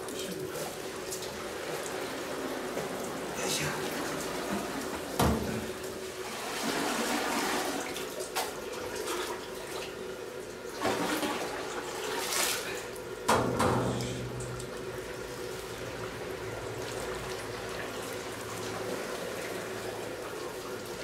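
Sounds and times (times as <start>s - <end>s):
thick mash sloshing and splashing: 0.1s - 10.0s, 10.7s - 13.0s.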